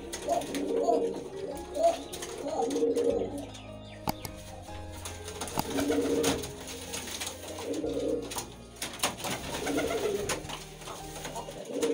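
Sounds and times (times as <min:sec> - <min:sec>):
pigeon cooing: 0:00.0 - 0:11.9
sharp clicks: 0:04.0 - 0:05.8.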